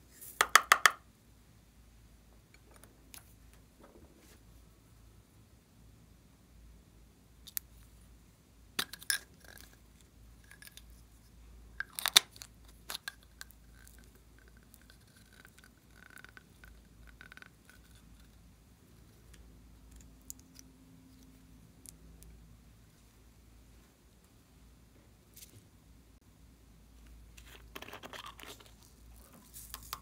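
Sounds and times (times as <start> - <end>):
plastic caps clicking and popping: 8.8 - 9.8, 11.8 - 13.6.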